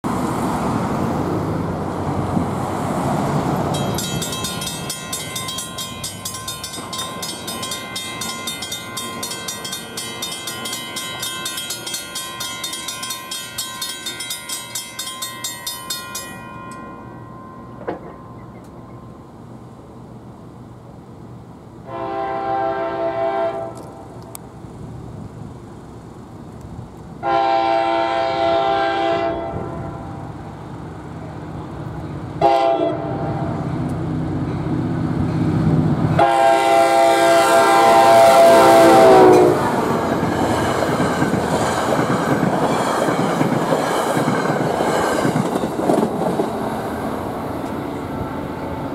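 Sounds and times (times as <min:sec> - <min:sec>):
crossing warning bell ringing: 0:03.6 - 0:19.4, 0:36.1 - 0:46.0
locomotive air horn blasts: 0:21.8 - 0:23.8, 0:27.2 - 0:30.2, 0:32.4 - 0:33.4, 0:36.2 - 0:39.8.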